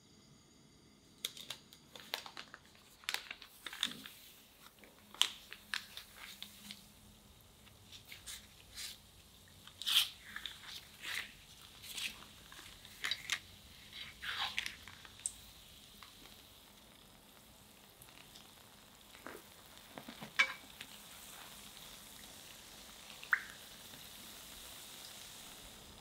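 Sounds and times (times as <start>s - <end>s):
parchment paper rustling: 1.3s - 6.9s, 9.8s - 15.2s
dough frying in oil: 2.8s - 26.0s.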